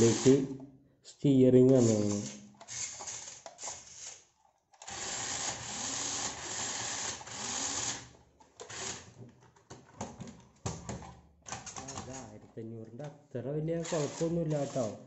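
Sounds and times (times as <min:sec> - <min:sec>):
toy car motor whirring: 0:00.0 - 0:00.5, 0:01.7 - 0:09.1, 0:13.8 - 0:15.0.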